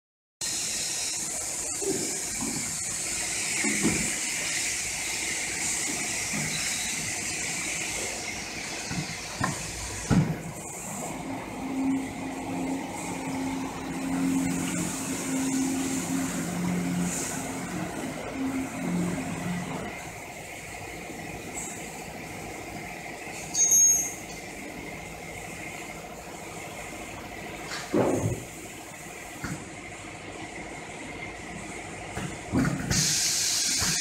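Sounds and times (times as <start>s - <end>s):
filling machine hissing: 0.4s - 20.0s, 32.9s - 34.0s
machine clunks and knocks: 27.8s - 28.5s.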